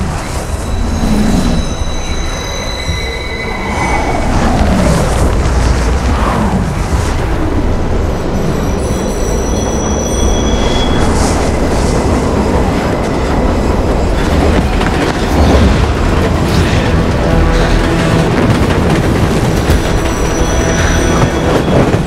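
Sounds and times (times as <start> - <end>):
subway train rumbling: 0.0 - 22.0
train wheels squealing: 0.1 - 4.5, 8.4 - 11.6, 19.6 - 22.0.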